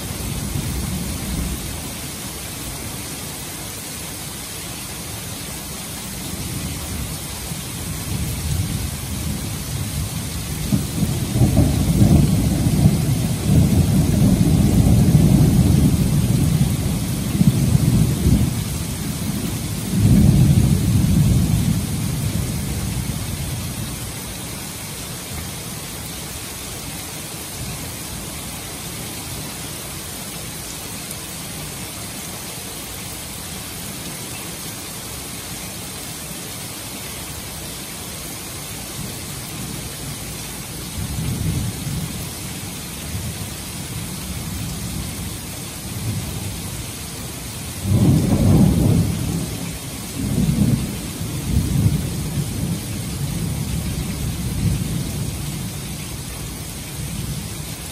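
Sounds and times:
heavy rain on roof: 0:00.0 - 0:57.9
rolling thunder: 0:08.1 - 0:23.6, 0:47.8 - 0:55.6.

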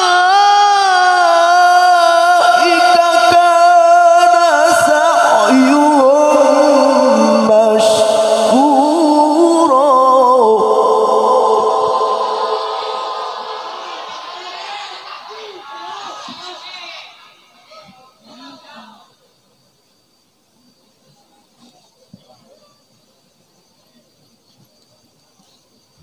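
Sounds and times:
man chanting into microphone: 0:00.0 - 0:13.7.

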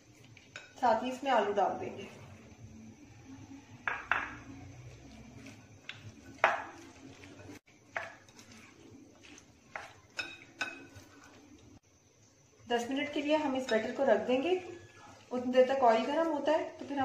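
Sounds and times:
cutlery clinking against glass bowl: 0:09.2 - 0:11.3.

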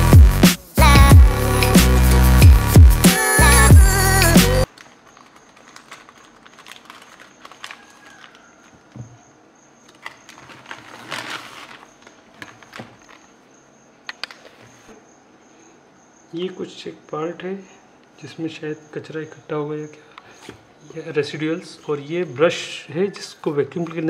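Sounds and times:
plastic packaging crinkling: 0:04.7 - 0:09.0, 0:09.8 - 0:13.4.

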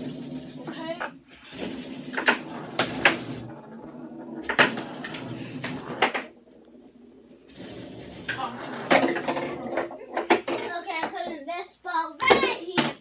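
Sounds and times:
foosball ball knocks: 0:00.1 - 0:06.4, 0:07.8 - 0:10.7.

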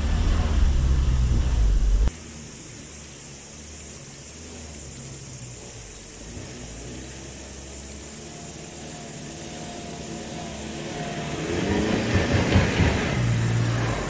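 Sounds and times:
low rumble: 0:00.0 - 0:02.1
distant van engine: 0:00.0 - 0:14.0
steady hiss: 0:02.0 - 0:14.0.

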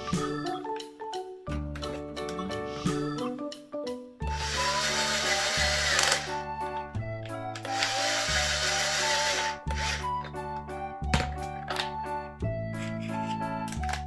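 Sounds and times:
children's music with mallet notes: 0:00.0 - 0:05.8
toy drill motor whirring: 0:04.3 - 0:06.4, 0:07.6 - 0:10.1.

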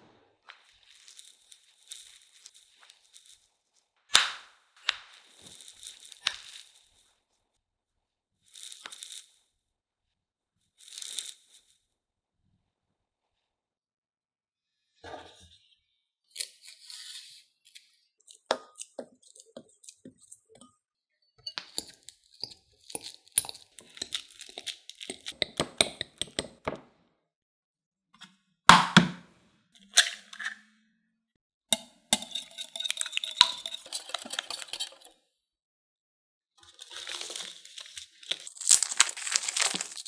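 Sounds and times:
egg cracking: 0:21.4 - 0:26.8, 0:32.1 - 0:35.2, 0:36.7 - 0:40.0
stirring scraping glass bowl: 0:32.1 - 0:35.2
utensil clinking against glass bowl: 0:32.2 - 0:35.1.

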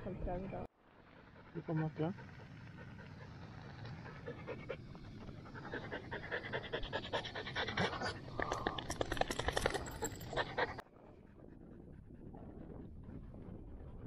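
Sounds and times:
dog panting: 0:01.2 - 0:10.8.

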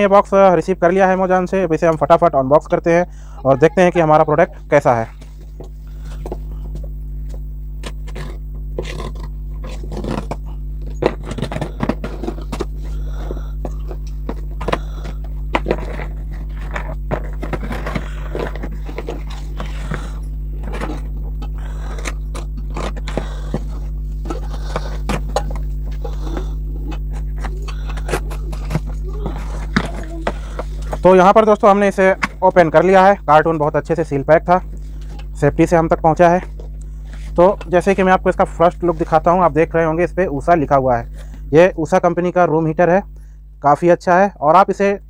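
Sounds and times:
steady low hum: 0:00.0 - 0:45.0
packing tape tearing: 0:07.8 - 0:12.7.

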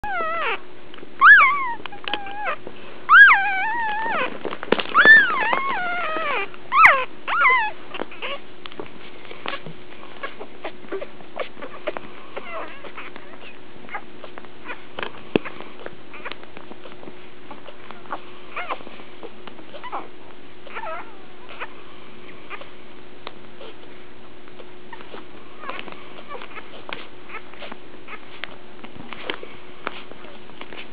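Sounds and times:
puppies crying and whimpering: 0:00.0 - 0:22.8, 0:23.5 - 0:30.9
steady low hum: 0:00.0 - 0:30.9.

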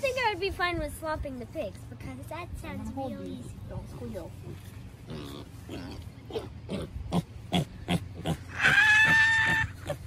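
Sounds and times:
pig grunting: 0:04.5 - 0:10.0
pig squealing: 0:05.1 - 0:10.0.

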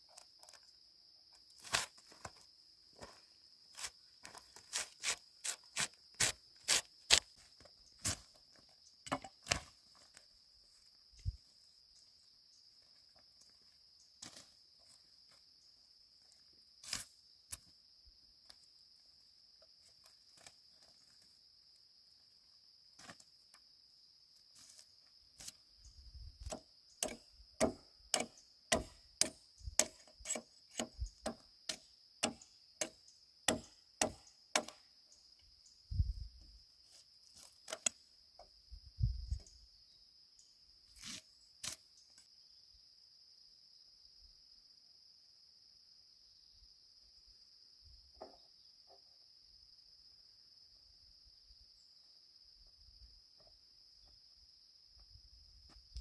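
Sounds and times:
blade chopping wood: 0:04.7 - 0:07.3, 0:09.1 - 0:09.7, 0:26.4 - 0:34.8.

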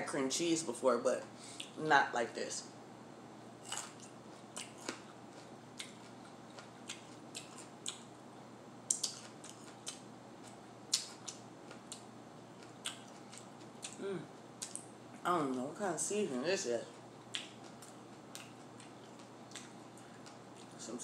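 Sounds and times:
crunching and chewing pepper: 0:03.6 - 0:08.2, 0:08.9 - 0:14.9, 0:16.8 - 0:20.8.

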